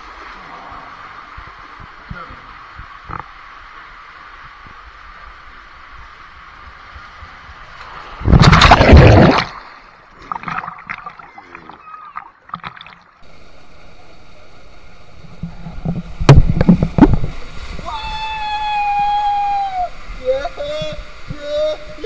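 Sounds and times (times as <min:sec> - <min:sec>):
steady hiss: 0:00.0 - 0:08.3, 0:13.2 - 0:22.0
water rushing through slide tube: 0:00.0 - 0:22.0
water sloshing and gurgling: 0:06.9 - 0:13.8, 0:14.8 - 0:17.9
loud splash into pool: 0:08.0 - 0:10.9.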